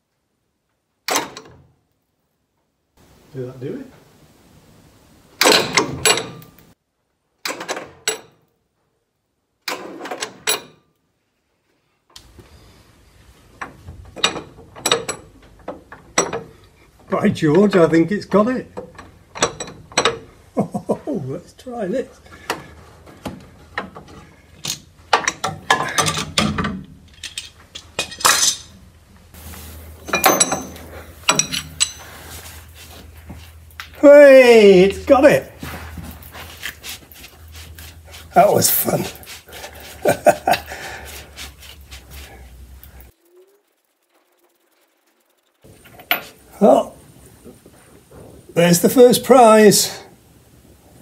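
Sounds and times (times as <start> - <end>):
metal tools clattering: 5.4 - 6.6, 18.8 - 20.3, 22.3 - 28.8, 29.9 - 32.8
sharp metallic clanks: 30.0 - 32.2.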